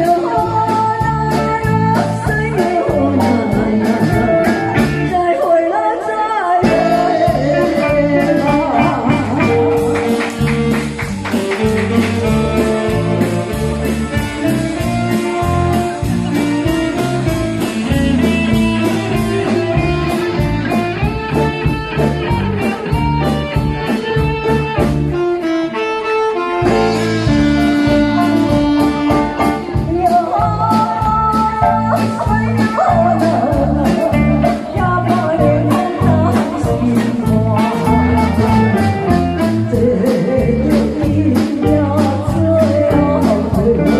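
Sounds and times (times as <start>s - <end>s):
drum kit beat: 0.0s - 5.4s, 6.6s - 43.9s
bass: 0.0s - 25.7s, 26.6s - 43.9s
electric guitar: 0.0s - 43.9s
saxophone: 6.6s - 41.3s.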